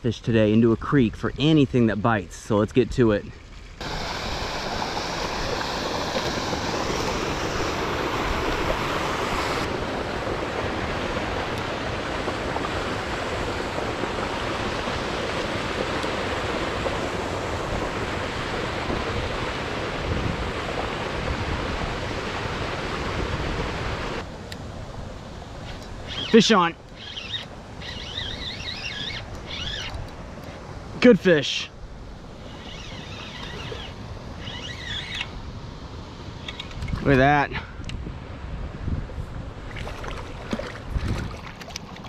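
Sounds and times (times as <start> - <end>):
water rushing from a pipe: 3.8 - 24.3, 39.6 - 42.0.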